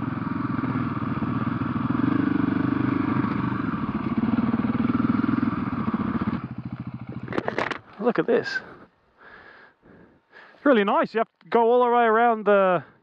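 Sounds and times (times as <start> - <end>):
dirt bike engine running: 0.0 - 8.8.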